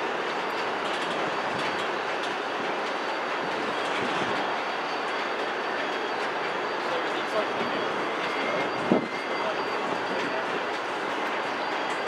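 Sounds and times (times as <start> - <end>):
rail cars rumbling and rattling: 0.0 - 12.0.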